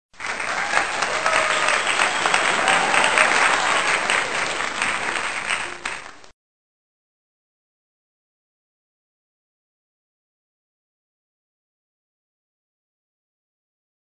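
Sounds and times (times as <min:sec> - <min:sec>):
large crowd clapping: 0:00.1 - 0:06.3.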